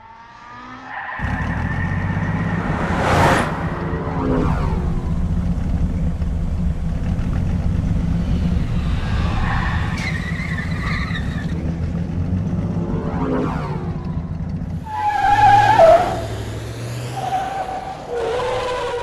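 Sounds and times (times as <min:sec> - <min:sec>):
car engines rumbling: 0:00.0 - 0:19.0
tyre screech: 0:08.3 - 0:11.6, 0:14.8 - 0:16.4, 0:17.2 - 0:19.0.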